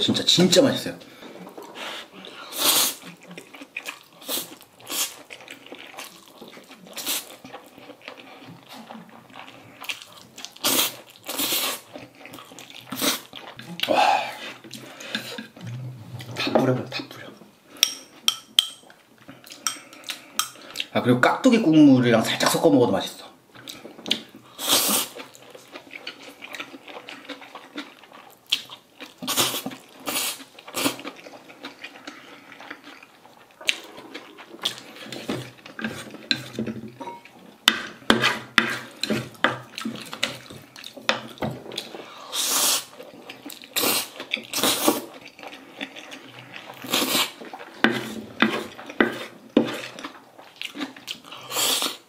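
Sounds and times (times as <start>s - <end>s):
noodles slurped and chewed: 1.0s - 17.8s, 18.9s - 20.9s, 23.5s - 52.0s
chopsticks clicking on ceramic plate: 17.8s - 18.8s.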